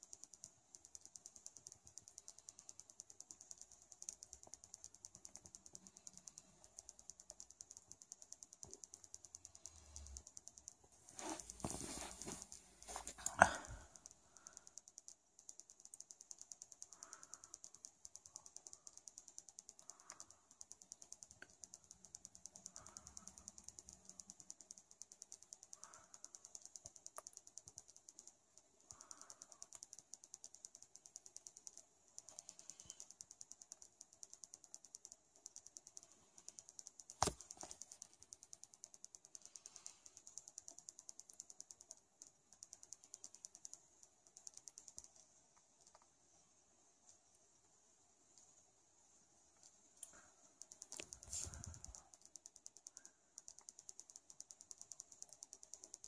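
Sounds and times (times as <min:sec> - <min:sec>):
faint fast ticking: 0:00.0 - 0:56.0
sharp click: 0:28.9 - 0:43.8.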